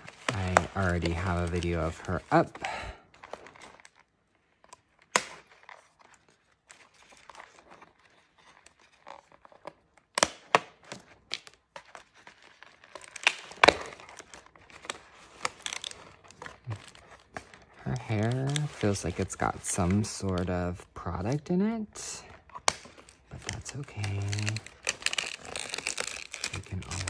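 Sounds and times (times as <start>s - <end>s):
plastic and cardboard crinkling: 0.0s - 27.0s
scissors snipping plastic: 22.6s - 27.0s.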